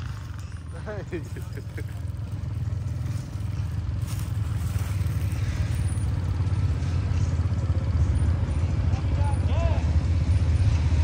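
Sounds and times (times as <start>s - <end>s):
atv engine running: 0.0s - 11.0s.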